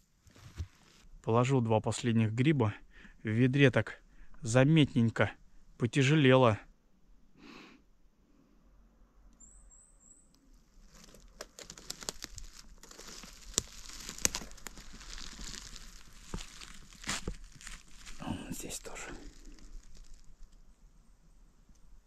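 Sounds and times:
footsteps crunching through leaf litter: 0:10.8 - 0:20.4
sharp crackles: 0:10.8 - 0:20.8.

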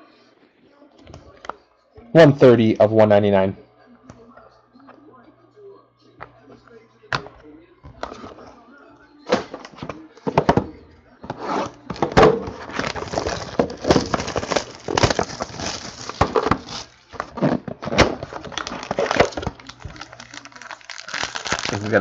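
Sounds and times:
packaging crinkling and rustling: 0:11.6 - 0:22.0.

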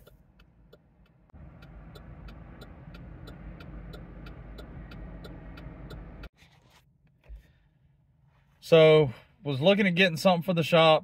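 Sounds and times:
steady clicking from truck: 0:00.0 - 0:06.3.

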